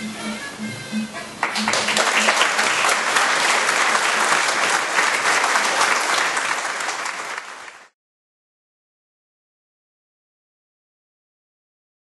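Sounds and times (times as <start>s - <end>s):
audience applauding: 1.4s - 8.0s.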